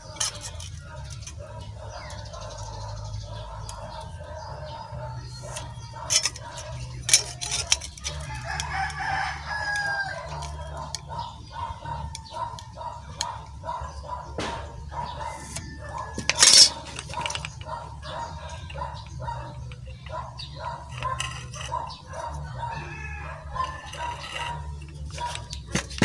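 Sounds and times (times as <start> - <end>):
rooster crowing: 8.0 - 10.9, 14.4 - 16.8, 22.2 - 24.7.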